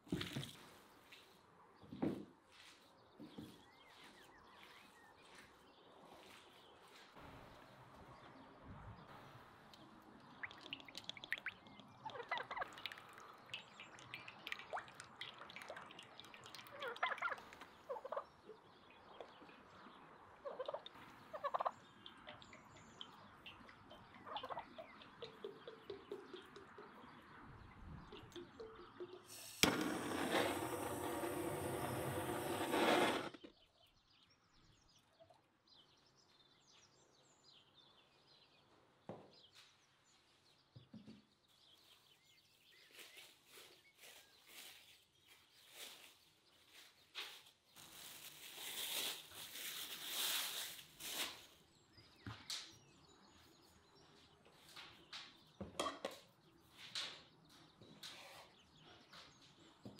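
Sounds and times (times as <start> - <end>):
gas blowtorch roaring: 29.4 - 33.3.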